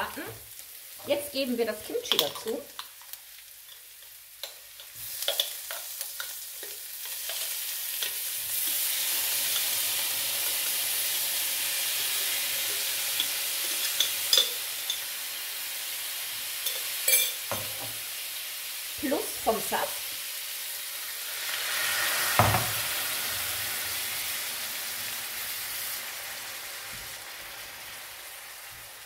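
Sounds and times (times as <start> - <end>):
frying pan sizzling: 0.0 - 29.0
jar and utensil clicks: 2.0 - 2.9.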